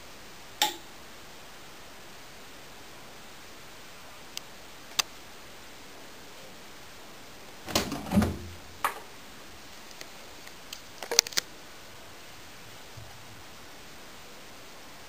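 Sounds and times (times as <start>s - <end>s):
door opening clunk and rattle: 7.7s - 9.0s
washing machine door clicks: 7.7s - 9.0s.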